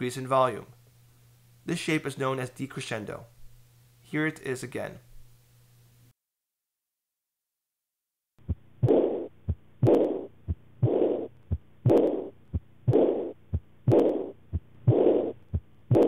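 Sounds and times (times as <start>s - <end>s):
blowing heart murmur: 8.4s - 16.0s
heartbeat: 8.4s - 16.0s.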